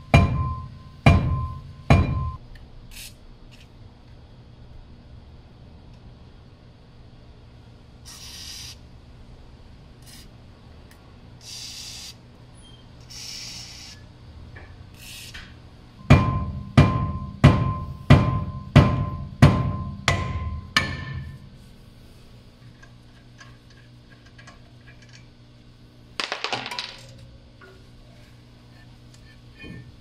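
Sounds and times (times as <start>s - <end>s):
hammer ringing on metal disc: 0.0s - 2.4s, 16.0s - 21.4s
aerosol can spraying: 8.1s - 8.8s.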